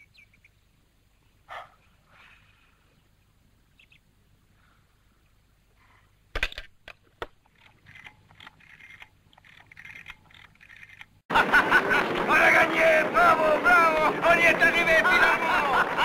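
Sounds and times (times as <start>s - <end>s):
faint high chirping: 0.0s - 2.2s, 2.8s - 4.1s.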